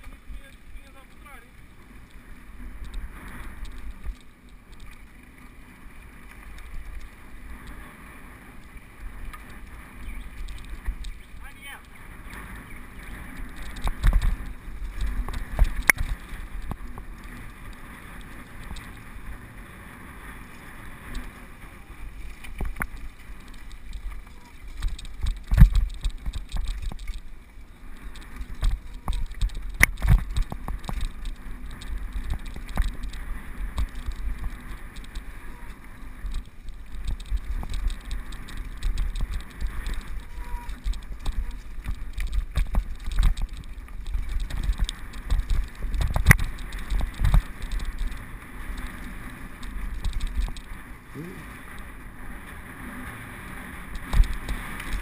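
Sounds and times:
mountain bike rattling: 0.0 - 55.0.

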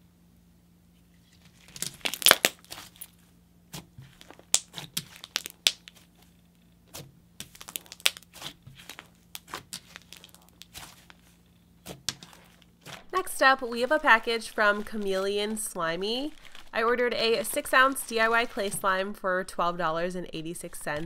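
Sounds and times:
faint steady hum: 0.0 - 21.0
slime tearing: 1.4 - 6.3, 6.9 - 13.2, 16.2 - 16.8
slime crackling pops: 1.7 - 3.0, 4.2 - 6.1, 7.4 - 11.1.

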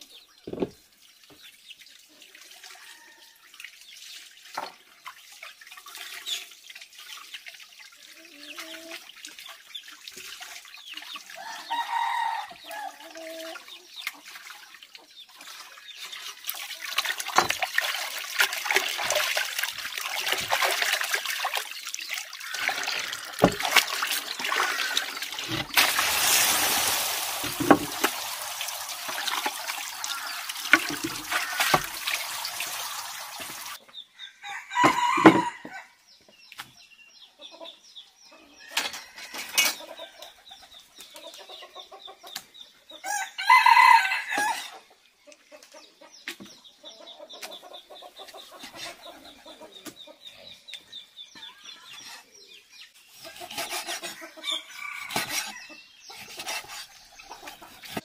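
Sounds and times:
rooster crowing loudly: 11.4 - 13.0, 34.4 - 35.9, 43.0 - 44.7
tap water pouring into bucket: 15.4 - 33.8
chickens clucking: 37.3 - 43.0, 44.4 - 58.0.

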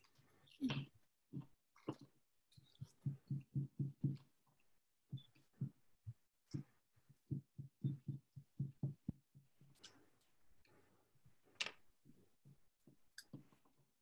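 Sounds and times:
sponge dabbing paint on paper: 1.3 - 10.8.

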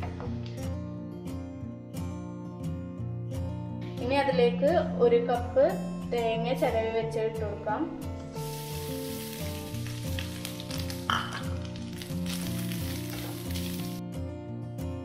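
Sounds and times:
background music: 0.0 - 15.0
coconut sizzling in hot ghee: 8.3 - 14.0.

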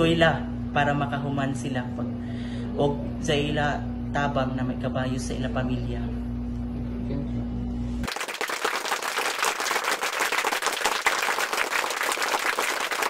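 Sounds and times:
steady low hum: 0.0 - 8.1
crowd applause: 8.0 - 13.0.

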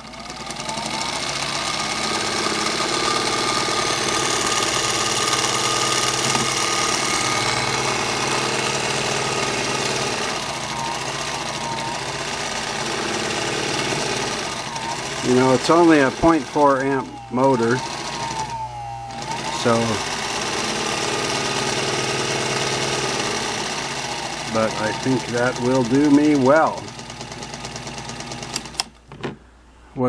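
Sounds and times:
sewing machine motor whine: 0.0 - 29.0.

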